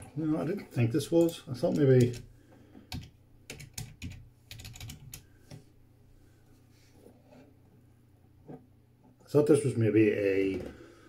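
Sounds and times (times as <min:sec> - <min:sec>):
typing on keyboard: 0:02.9 - 0:05.3.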